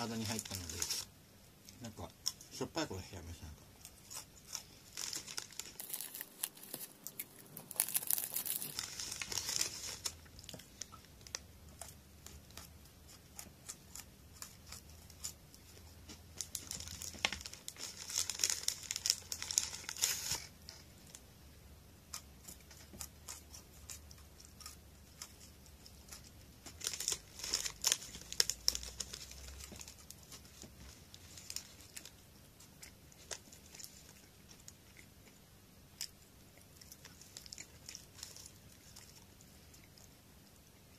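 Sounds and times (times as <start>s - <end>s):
plastic wrapper crinkling: 0.0s - 1.1s, 3.9s - 11.4s, 16.3s - 21.2s, 26.2s - 32.2s.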